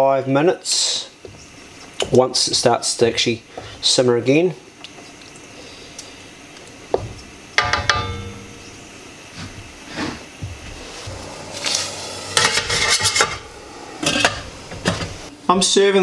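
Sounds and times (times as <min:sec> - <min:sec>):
pan lid clanking: 0:07.6 - 0:08.6
steamer pot clattering: 0:07.6 - 0:08.6.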